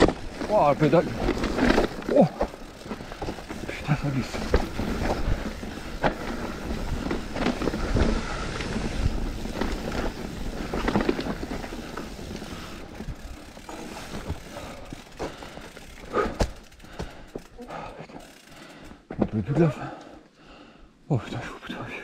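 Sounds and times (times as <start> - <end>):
bike knocks and rattles: 0.0 - 12.2, 13.0 - 17.6
tyres rolling on dirt and stones: 0.0 - 19.9.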